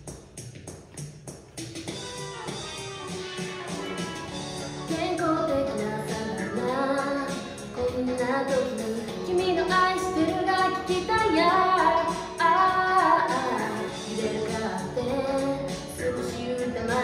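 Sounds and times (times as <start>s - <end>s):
backing track with steady beat: 0.0s - 17.0s
girl singing: 4.8s - 17.0s.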